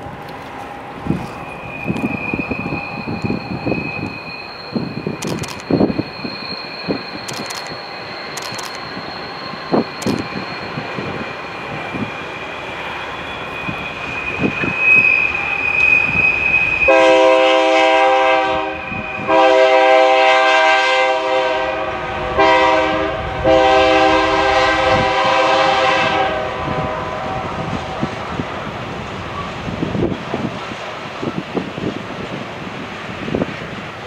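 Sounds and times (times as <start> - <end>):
train running noise: 0.0 - 34.0
locomotive air horn blasts: 16.8 - 28.0.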